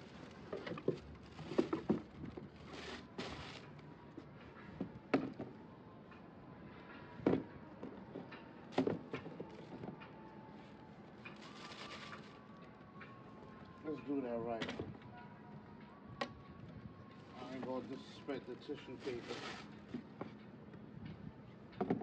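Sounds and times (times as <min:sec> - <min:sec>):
tissue paper rustling: 0:02.6 - 0:03.6, 0:11.3 - 0:12.5, 0:19.0 - 0:19.7.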